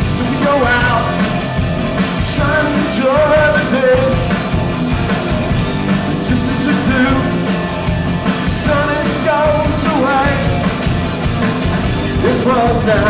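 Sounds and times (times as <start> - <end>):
man singing: 0.0 - 1.4, 2.2 - 4.4, 6.1 - 7.5, 8.4 - 10.8, 12.2 - 13.0
drum kit: 0.0 - 13.0
electric guitars: 0.0 - 13.0.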